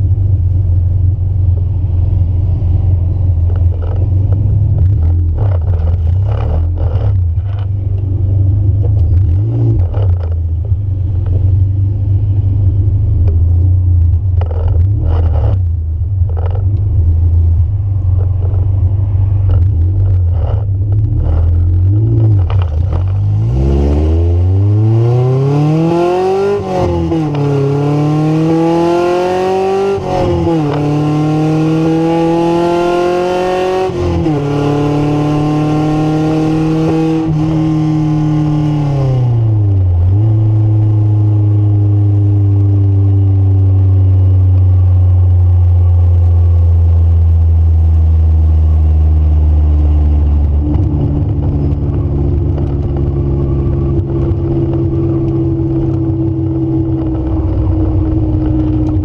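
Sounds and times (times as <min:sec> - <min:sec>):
car engine idling and accelerating: 0:00.0 - 0:59.0.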